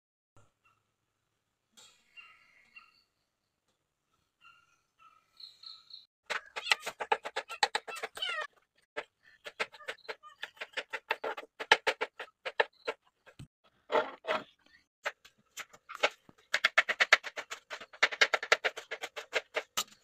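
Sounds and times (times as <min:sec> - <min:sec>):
faint chirps: 0:01.8 - 0:06.1.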